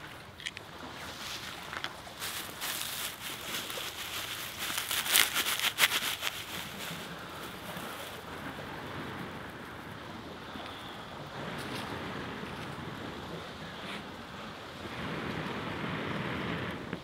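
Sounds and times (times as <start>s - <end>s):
dry grass rustling and crackling: 0.0s - 10.0s.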